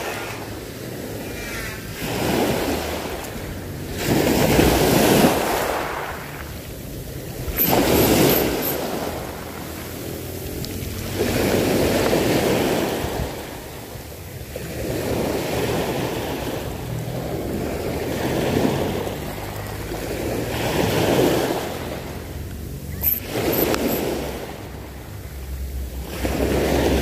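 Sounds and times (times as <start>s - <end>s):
small waves breaking on shore: 0.0s - 27.0s
sharp clicks: 23.0s - 24.0s.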